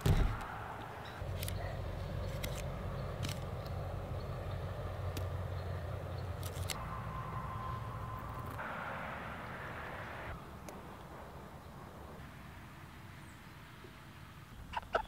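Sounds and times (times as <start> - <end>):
heavy thump: 0.0 - 0.5.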